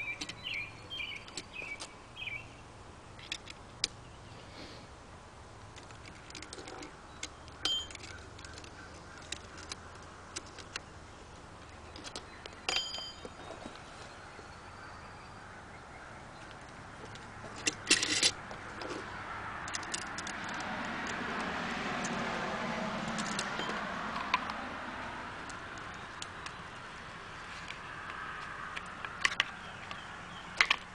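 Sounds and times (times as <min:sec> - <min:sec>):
small metal parts clicking: 0:05.8 - 0:10.8, 0:17.1 - 0:19.0, 0:19.6 - 0:21.5, 0:23.1 - 0:24.5.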